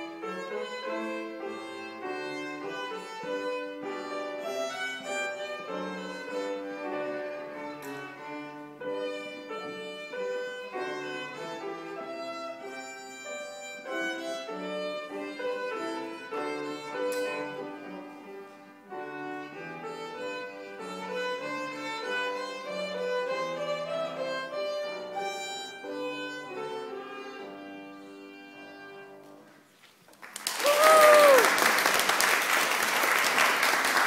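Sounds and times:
violin melody: 0.0 - 29.6
piano accompaniment: 0.0 - 29.7
audience applause: 30.1 - 34.0
person whooping: 30.5 - 31.6.

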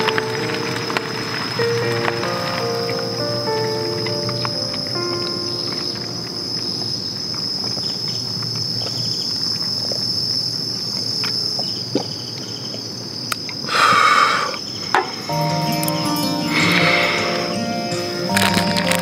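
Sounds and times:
insects singing: 0.0 - 19.0
breathy burst: 13.7 - 14.6, 16.4 - 18.1.

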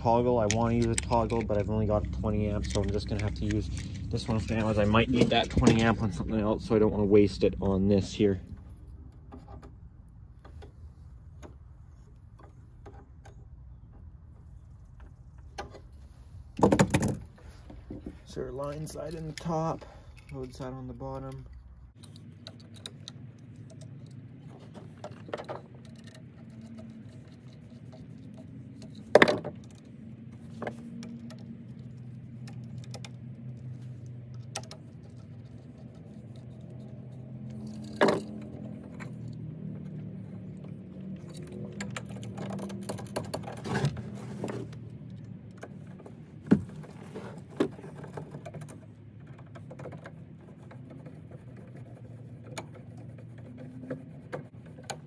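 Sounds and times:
tools clicking and knocking: 0.0 - 6.2, 16.6 - 55.0.

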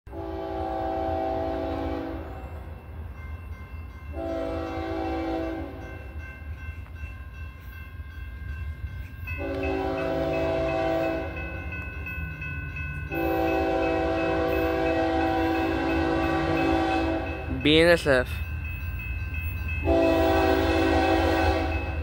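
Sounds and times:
locomotive air horn blasts: 0.1 - 2.4, 4.1 - 5.9, 9.4 - 11.4, 13.1 - 17.4, 19.8 - 22.0
crossing bell ringing: 0.1 - 22.0.

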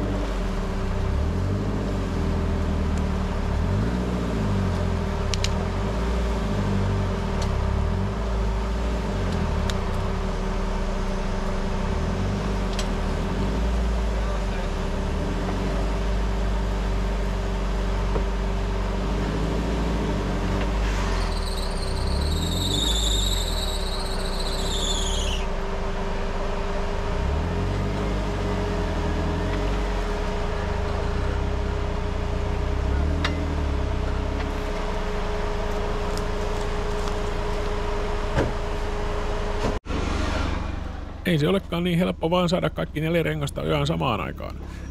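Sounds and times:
vehicle engine whining at low revs: 0.0 - 44.9
high wavering squeal: 21.0 - 25.6.

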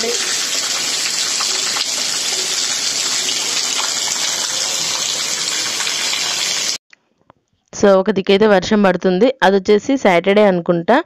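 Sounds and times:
heavy rain falling: 0.0 - 6.8
water gushing off roof: 0.0 - 6.8
water splashing on doorstep: 0.0 - 6.8.

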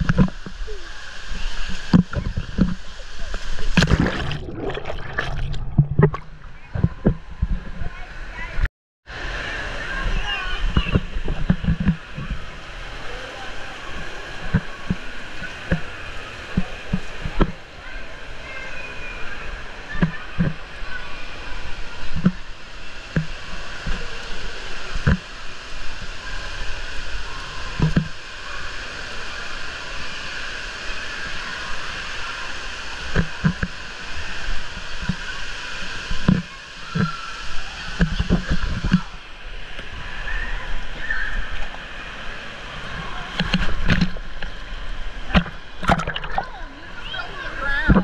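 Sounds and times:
water rushing down a slide: 0.0 - 48.0
splash into pool: 3.3 - 7.0, 45.2 - 46.6.

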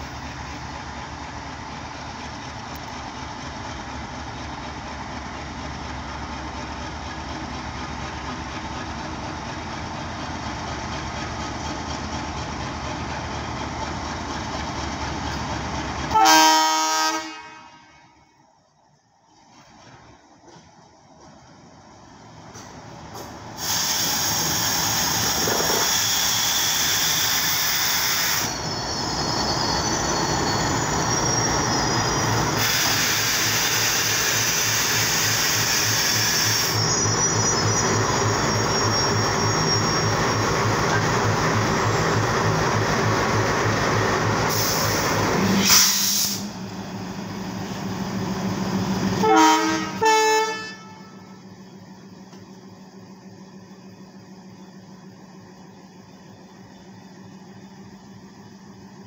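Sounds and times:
train wheels on rails: 0.0 - 16.5, 19.3 - 59.0
locomotive engine hum: 0.0 - 59.0
locomotive horn blasts: 16.1 - 18.2, 49.2 - 51.4
high-pitched wheel squeal: 23.7 - 42.3.

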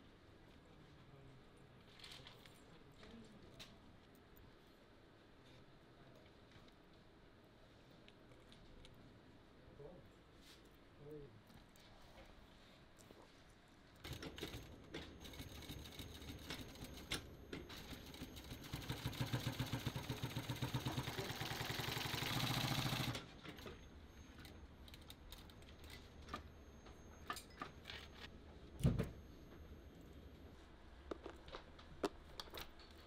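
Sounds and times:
sewing machine stitching: 14.0 - 23.8.

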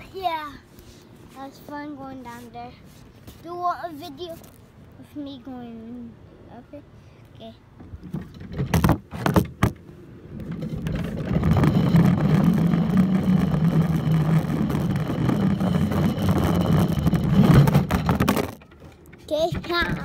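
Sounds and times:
toy cart wheels rumbling on track: 10.4 - 20.0.

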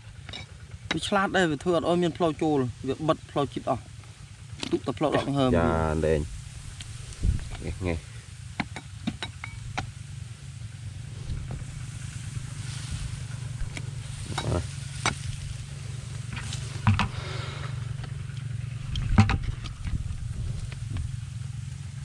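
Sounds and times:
steady low rumble: 0.0 - 22.0
dry soil crunching: 5.0 - 8.2, 10.9 - 22.0.

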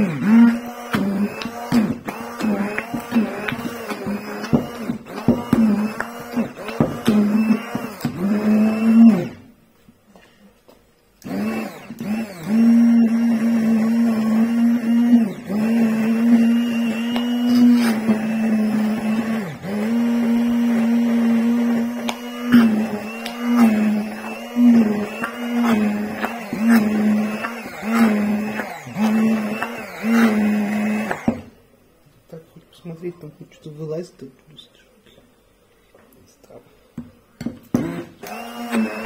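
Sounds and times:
immersion blender motor whine: 0.0 - 9.5, 11.2 - 31.5, 37.8 - 39.0.

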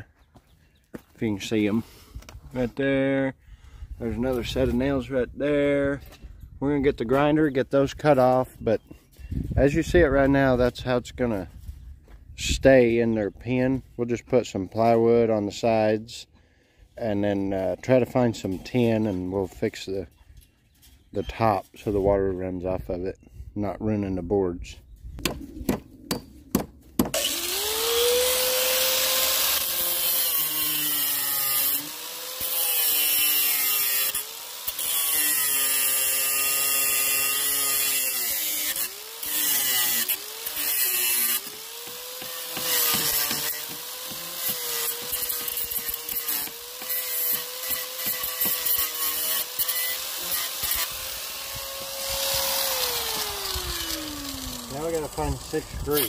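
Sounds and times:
angle grinder cutting metal: 27.1 - 56.0.

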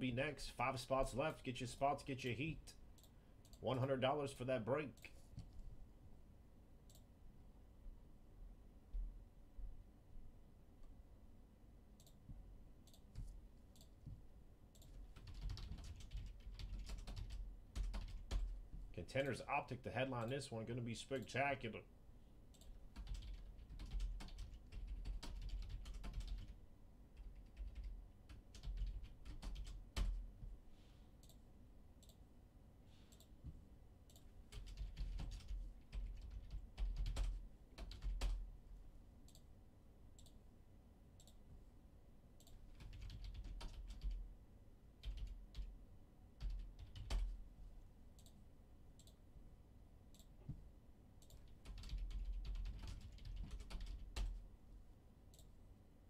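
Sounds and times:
typing on computer keyboard: 14.8 - 18.5, 22.6 - 26.6, 27.2 - 30.2, 34.1 - 38.4, 42.4 - 44.2, 45.0 - 45.7, 46.4 - 47.4, 51.2 - 54.4.

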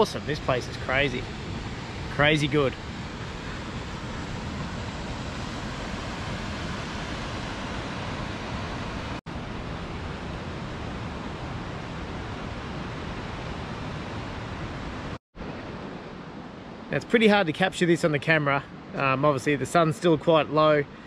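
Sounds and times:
waterfall rushing: 0.0 - 9.2.

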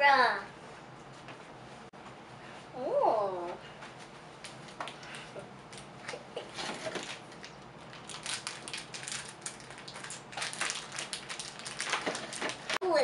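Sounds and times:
foil bag crinkling: 6.8 - 12.8.

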